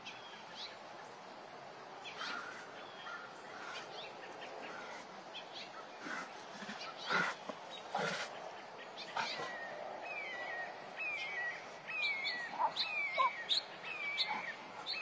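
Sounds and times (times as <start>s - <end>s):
tiger hissing: 3.5s - 5.3s, 5.9s - 8.4s, 9.2s - 9.6s.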